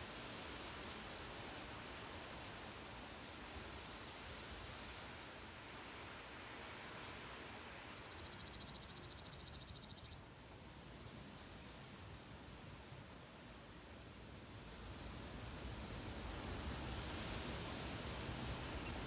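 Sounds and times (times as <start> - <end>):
wind in trees: 0.0 - 19.0
songbird trilling: 8.0 - 12.8.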